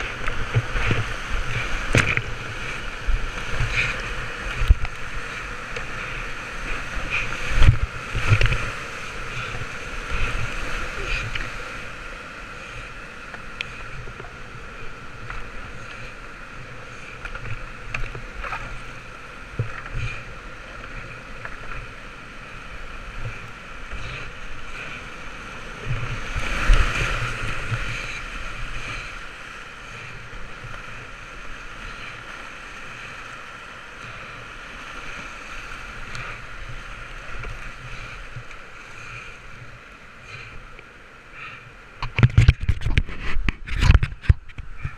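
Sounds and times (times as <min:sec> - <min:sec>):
knocks and splashes: 0:00.0 - 0:05.9
whitewater rapids rushing: 0:00.0 - 0:44.9.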